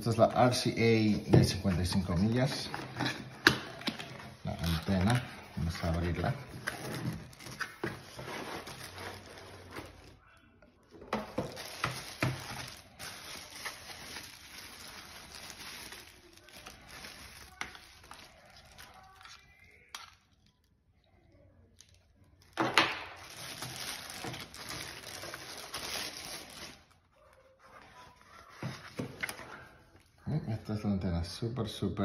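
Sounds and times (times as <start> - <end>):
plastic wrapping crinkling: 0.0 - 30.1.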